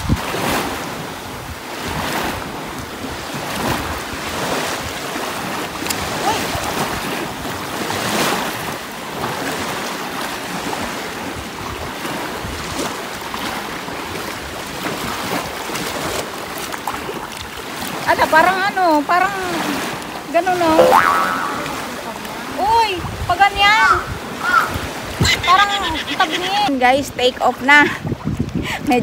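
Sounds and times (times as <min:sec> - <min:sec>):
wind buffeting microphone: 0:00.0 - 0:09.4, 0:21.6 - 0:26.0, 0:27.0 - 0:29.0
waves washing on sandy beach: 0:00.0 - 0:29.0.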